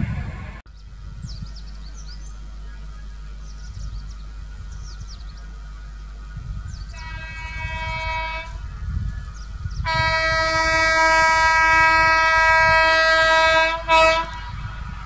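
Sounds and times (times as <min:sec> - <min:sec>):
train rumbling: 0:00.0 - 0:15.0
train air horn blasts: 0:06.9 - 0:08.6, 0:09.8 - 0:14.6.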